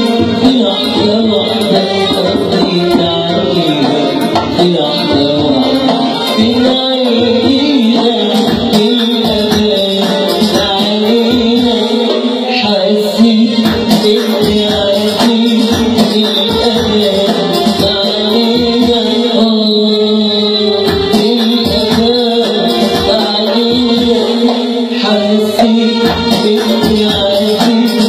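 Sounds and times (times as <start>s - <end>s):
hand drum percussion: 0.0s - 12.2s, 13.6s - 19.0s, 20.9s - 24.6s
band with sustained instruments: 0.0s - 28.0s
man singing amplified: 0.0s - 28.0s.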